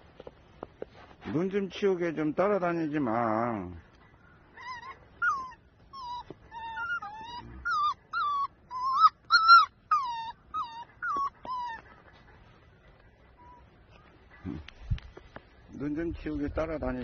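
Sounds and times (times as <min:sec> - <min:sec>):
puppies whining: 0:04.4 - 0:12.3, 0:13.3 - 0:14.6.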